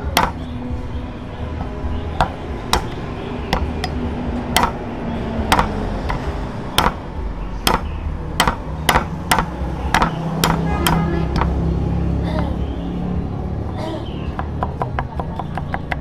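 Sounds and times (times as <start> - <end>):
knife chopping on wooden board: 0.2 - 0.5, 4.6 - 4.8, 5.5 - 7.0, 7.7 - 11.6.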